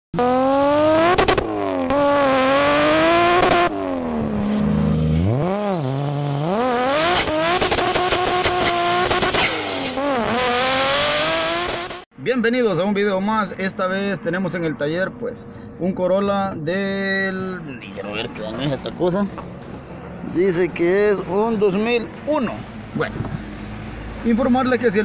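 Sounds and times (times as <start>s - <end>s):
racing car engine revving: 0.2s - 12.0s.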